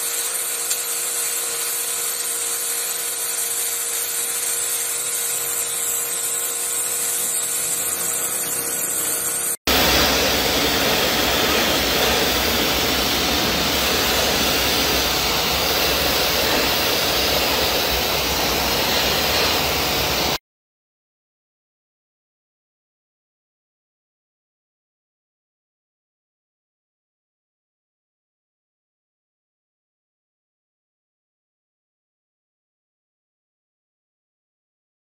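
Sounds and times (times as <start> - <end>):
pressure washer spraying: 0.0 - 20.4.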